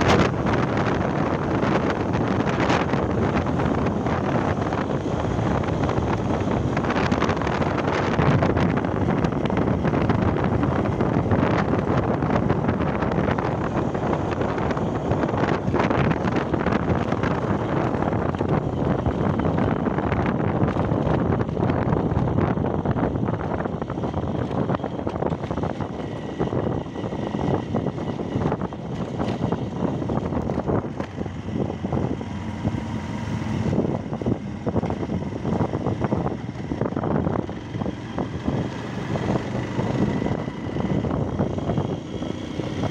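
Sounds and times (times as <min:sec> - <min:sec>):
motorcycle engine running: 0:00.0 - 0:42.9
wind rushing over microphone: 0:00.0 - 0:42.9.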